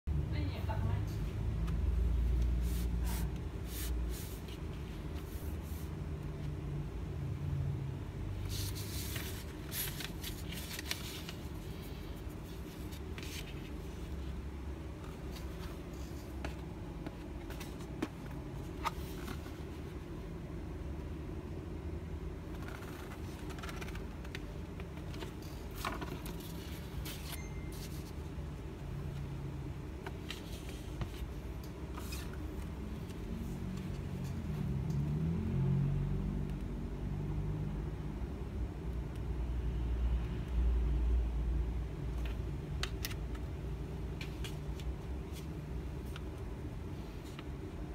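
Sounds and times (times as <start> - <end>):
paper rustling and scraping: 2.4 - 6.0, 8.4 - 14.3, 15.0 - 20.0, 22.5 - 28.3, 30.0 - 34.5.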